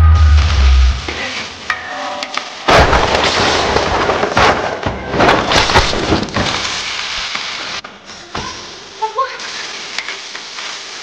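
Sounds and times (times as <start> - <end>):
hot oil sizzling and popping: 9.4 - 11.0.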